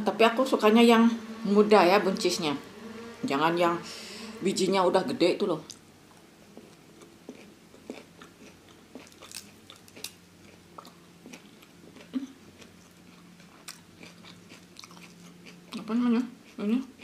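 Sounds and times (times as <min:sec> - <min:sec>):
person chewing raw vegetables: 0:05.7 - 0:17.0.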